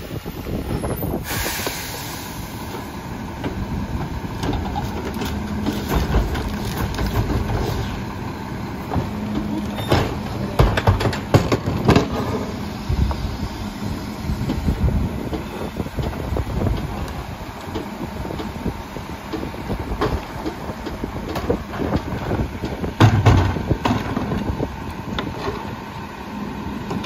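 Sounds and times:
garbage truck engine running: 0.0 - 27.0
carts banging against hopper: 3.4 - 8.1, 8.8 - 12.6, 19.3 - 24.6.

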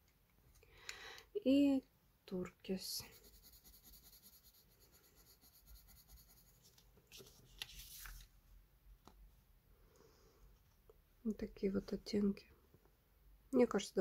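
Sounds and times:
pencil scratching on paper: 2.9 - 6.8
paper rustling: 6.6 - 8.3.

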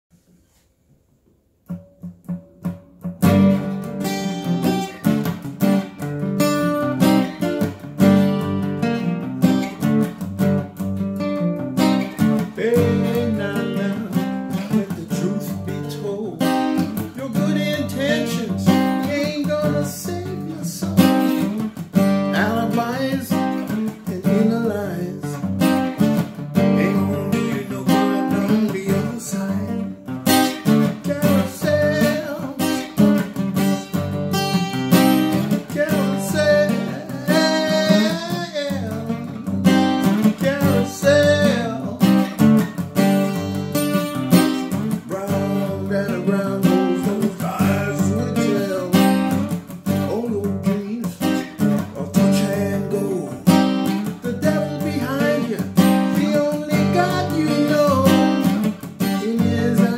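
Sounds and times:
acoustic guitar strumming: 1.6 - 59.9
man singing: 11.8 - 33.9, 34.7 - 59.9.

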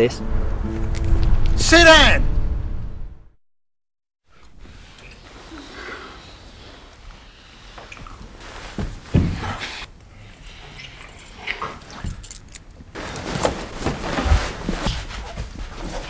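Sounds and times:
rustling: 4.3 - 16.0.

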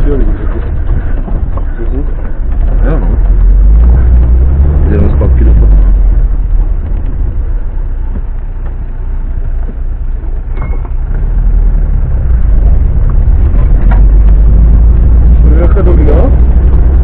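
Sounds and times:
vehicle engine rumbling in cab: 0.0 - 17.0
brief squeak: 10.5 - 11.0.

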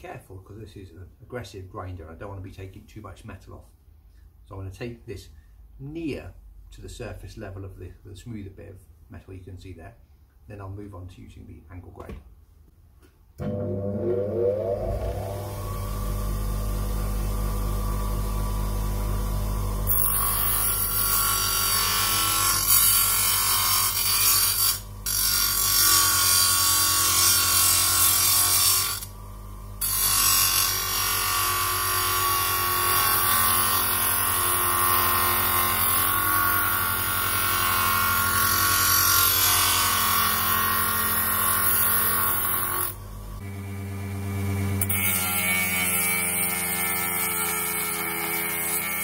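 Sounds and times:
grinder motor hum: 13.4 - 20.4, 42.9 - 47.3.

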